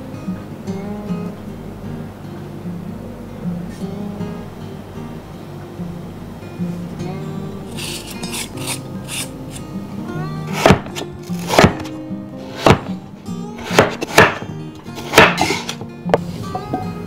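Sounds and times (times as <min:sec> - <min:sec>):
acoustic guitar music: 0:00.0 - 0:17.0
cleaver chopping on wooden board: 0:10.5 - 0:11.9, 0:12.5 - 0:12.9, 0:13.6 - 0:15.8.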